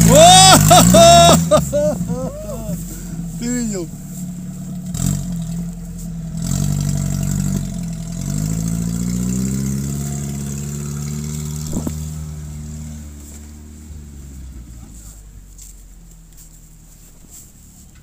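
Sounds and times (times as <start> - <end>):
off-road vehicle engine revving: 0.0 - 18.0.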